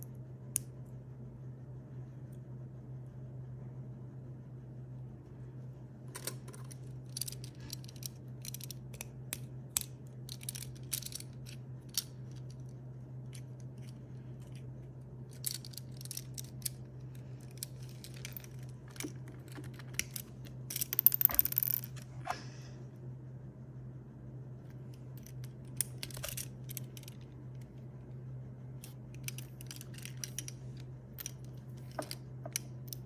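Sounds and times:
steady low hum: 0.0 - 33.0
plastic pieces clicking and rattling: 6.2 - 12.7, 15.3 - 22.0, 25.2 - 27.4, 28.8 - 33.0.

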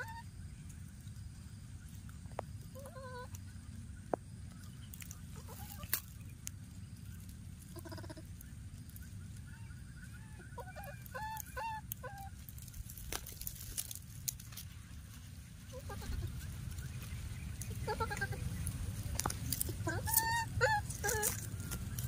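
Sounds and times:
baby monkey high-pitched calls: 0.0 - 0.3, 7.7 - 8.3, 10.6 - 12.4, 15.7 - 16.3, 17.7 - 18.6, 19.6 - 21.5
steady low rumble: 0.2 - 22.0.

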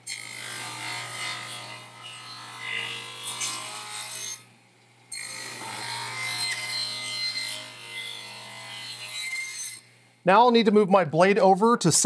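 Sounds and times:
table saw cutting wood: 0.0 - 4.5, 5.1 - 10.2.

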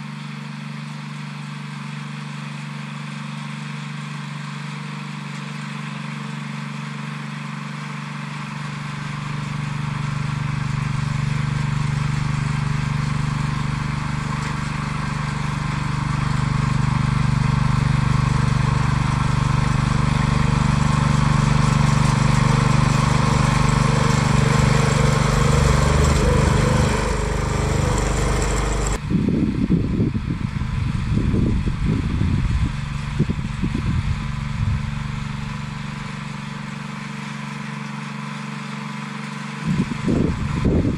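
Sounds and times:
tractor engine running under load: 0.0 - 40.9.

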